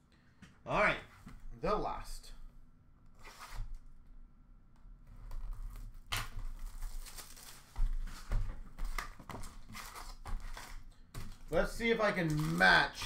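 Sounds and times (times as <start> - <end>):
card packaging rustling: 6.2 - 13.0.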